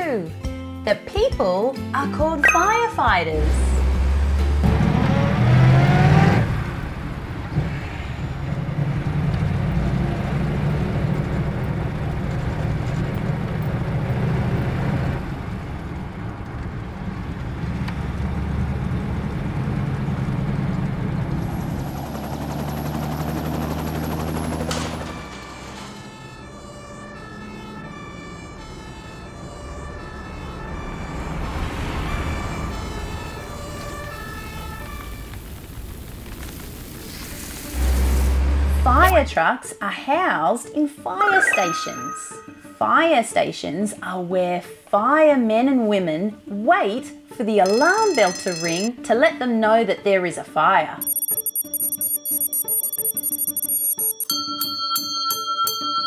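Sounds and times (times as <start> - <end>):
short repeated tones: 2.4 - 3.1, 51.0 - 54.3.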